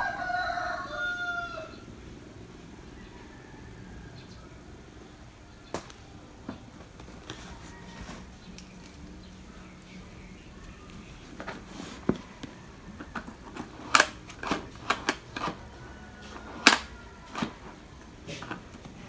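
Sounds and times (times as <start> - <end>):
plastic handle clicking: 11.4 - 15.7, 16.4 - 18.9.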